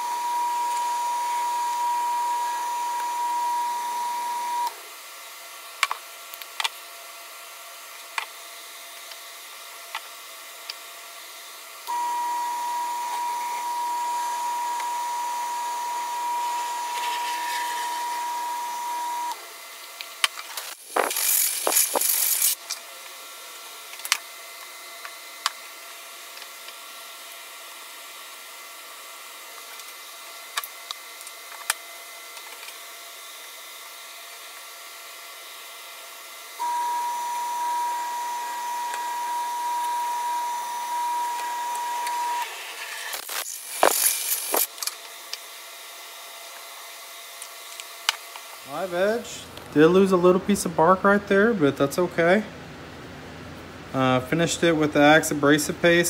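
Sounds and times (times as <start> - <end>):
wood lathe whining: 11.9 - 19.4, 36.6 - 44.7
sandpaper on spinning wood: 16.9 - 18.1, 20.8 - 22.6
loud hiss: 42.5 - 44.7.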